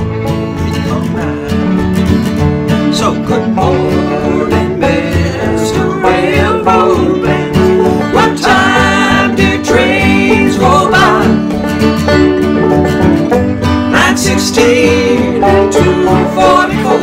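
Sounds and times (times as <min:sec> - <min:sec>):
picked banjo: 0:00.0 - 0:17.0
strummed acoustic guitar: 0:00.0 - 0:17.0
man singing: 0:00.7 - 0:02.0, 0:02.8 - 0:11.5, 0:13.9 - 0:17.0.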